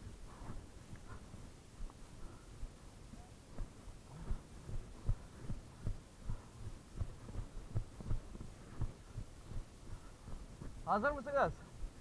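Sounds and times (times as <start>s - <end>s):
horse hoofbeats on turf: 2.6s - 12.0s.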